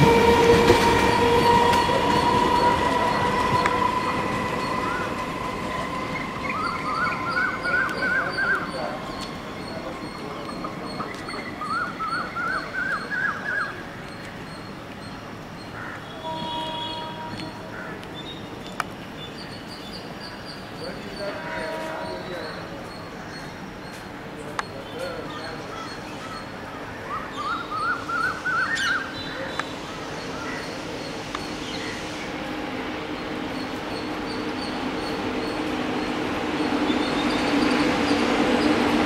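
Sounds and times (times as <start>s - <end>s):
bird singing: 1.0s - 17.6s, 24.6s - 32.1s.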